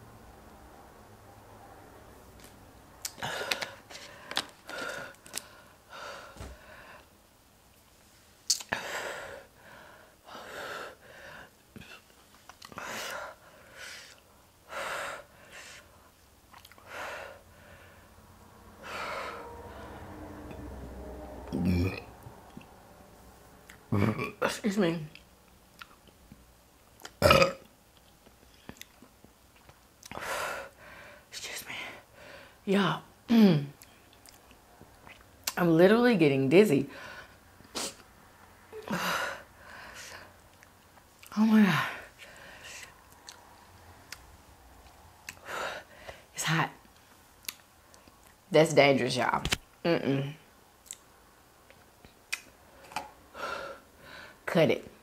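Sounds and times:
person burping loudly: 0:21.5 - 0:22.1, 0:23.9 - 0:24.5, 0:27.2 - 0:27.7.

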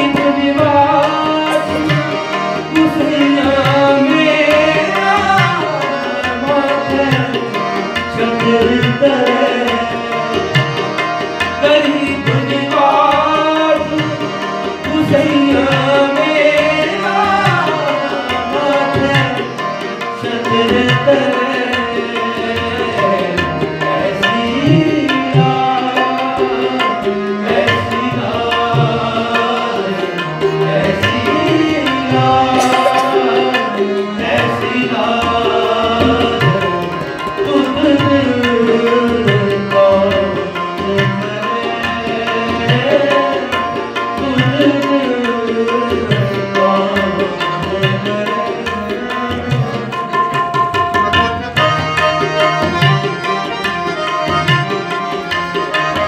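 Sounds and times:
harmonium chords: 0:00.0 - 0:56.0
tabla rhythm: 0:00.0 - 0:56.0
voices singing: 0:27.1 - 0:36.4.

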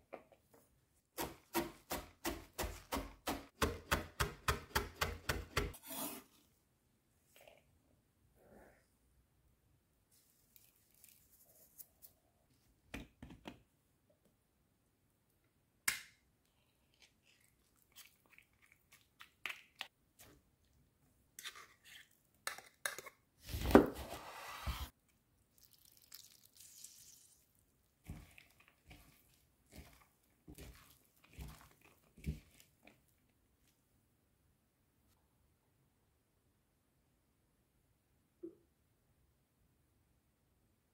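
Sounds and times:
cabbage tossed with spatula: 0:28.0 - 0:33.1.

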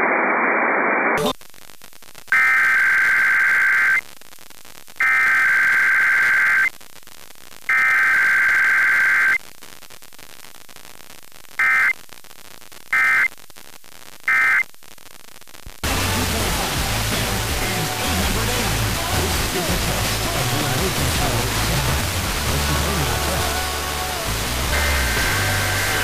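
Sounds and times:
radio hiss: 0:00.0 - 0:26.0
buzzy digital data bursts: 0:04.6 - 0:06.7, 0:15.8 - 0:26.0.

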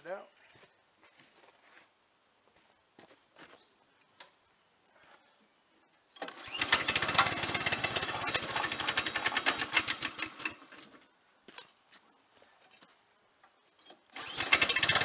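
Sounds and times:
small engine starting and running: 0:06.2 - 0:11.1, 0:13.8 - 0:15.0.

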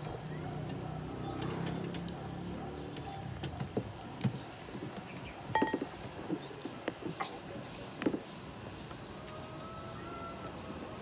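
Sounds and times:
low engine-like hum: 0:00.0 - 0:04.7.

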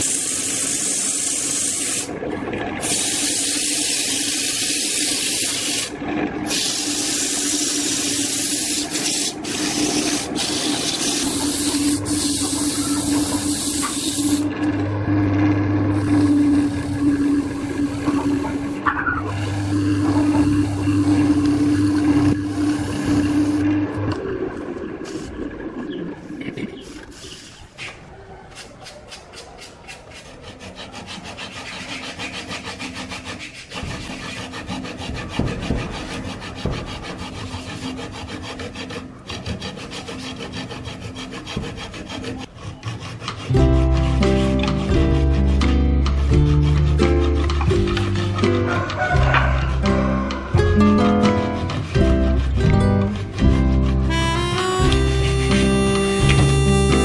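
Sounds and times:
sandpaper hissing on wood: 0:00.0 - 0:02.1, 0:02.8 - 0:05.9, 0:06.5 - 0:14.4, 0:26.9 - 0:45.8, 0:53.6 - 0:57.0
lathe motor hum: 0:00.0 - 0:25.7, 0:51.6 - 0:57.0.

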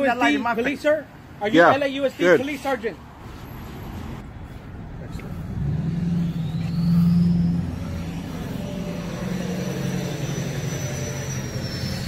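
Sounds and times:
low engine hum: 0:04.0 - 0:12.0
faint high whine: 0:05.4 - 0:12.0.

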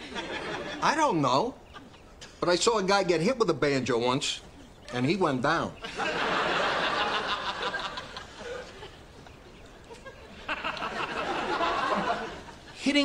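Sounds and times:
studio audience laughing: 0:05.8 - 0:12.8.

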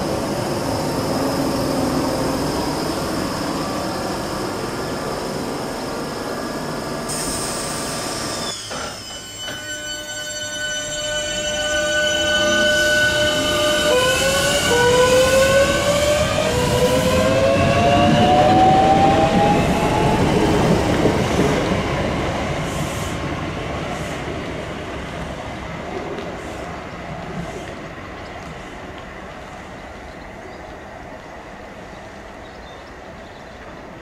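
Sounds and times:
train wheels rumbling: 0:00.0 - 0:34.0.

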